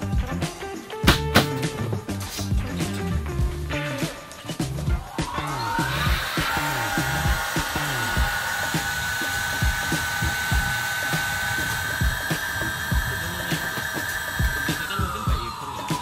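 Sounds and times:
electric air pump whining: 0:03.8 - 0:16.0.

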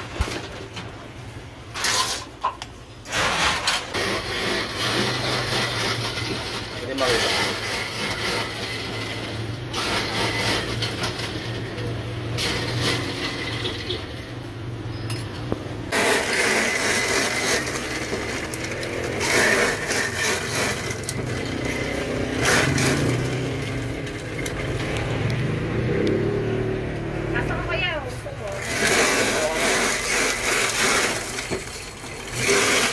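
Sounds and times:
spoon scraping metal trays: 0:01.6 - 0:25.2, 0:28.4 - 0:32.9
electric ice shaver grinding: 0:03.1 - 0:14.3, 0:15.9 - 0:26.1, 0:28.4 - 0:32.9.

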